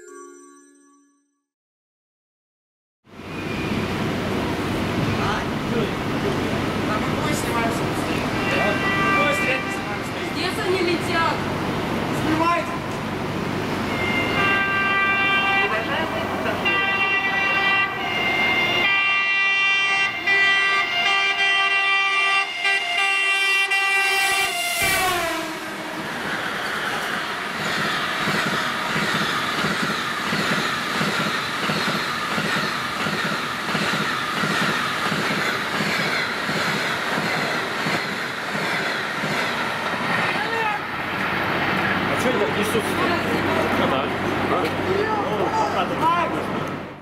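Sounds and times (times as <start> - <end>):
locomotive horn chord: 8.2 - 10.3, 13.8 - 26.2
train wheels clattering: 26.2 - 40.6.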